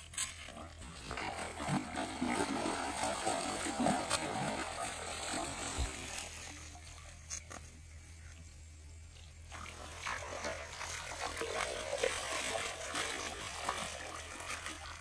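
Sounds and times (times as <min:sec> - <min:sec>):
fish splashing in water: 0:00.8 - 0:07.1, 0:09.5 - 0:15.0.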